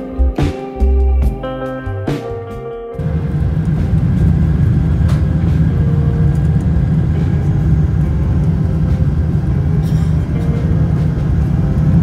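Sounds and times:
jetliner engines rumbling: 3.0s - 12.0s.

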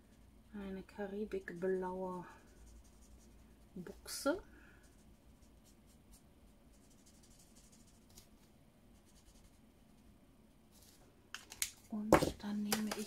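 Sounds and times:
marker scratching on paper: 4.9s - 8.3s.

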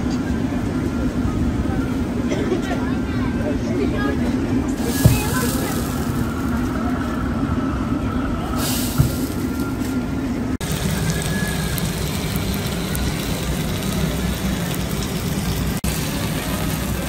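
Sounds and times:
food sizzling on griddle: 4.8s - 6.7s, 8.6s - 9.6s, 10.6s - 17.0s.

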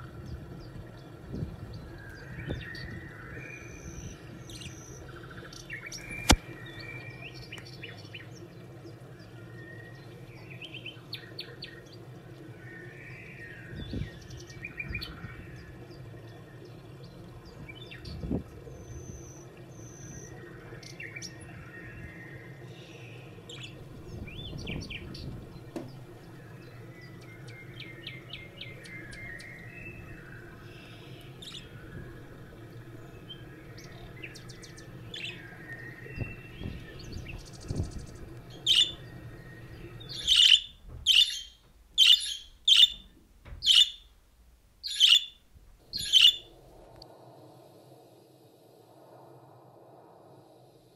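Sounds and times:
small birds chirping: 0.0s - 44.1s, 44.8s - 46.6s
low background hum: 0.0s - 50.9s
loud sharp bird chirps: 38.6s - 39.0s, 40.0s - 43.0s, 43.6s - 44.1s, 44.8s - 46.5s.

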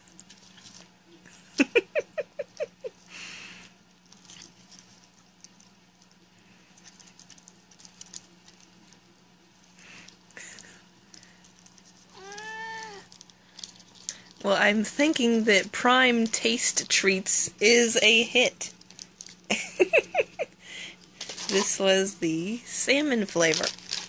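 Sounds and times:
cat chewing a treat: 0.0s - 1.5s, 2.8s - 14.4s
cat meowing: 12.1s - 13.1s.

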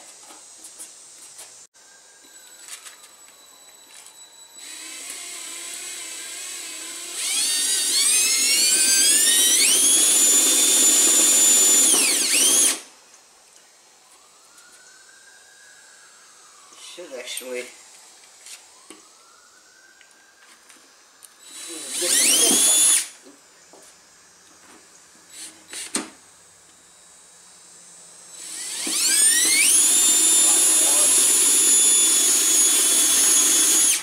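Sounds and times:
cordless drill whirring: 3.7s - 12.8s, 21.4s - 23.2s, 25.3s - 26.0s, 28.2s - 34.0s.

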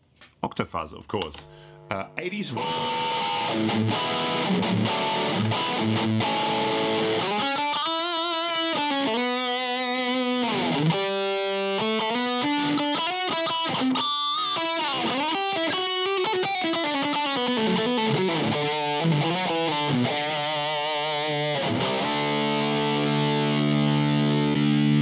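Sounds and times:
distorted electric guitar: 1.2s - 25.0s.

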